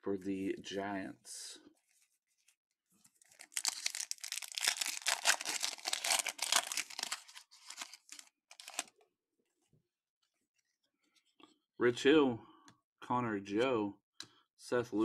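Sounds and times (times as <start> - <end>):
foil wrapper tearing and crinkling: 3.2 - 8.9.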